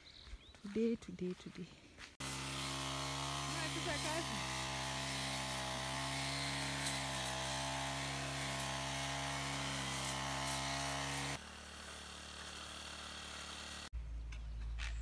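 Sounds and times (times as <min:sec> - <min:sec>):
brush cutter engine cutting grass: 0:02.0 - 0:13.9.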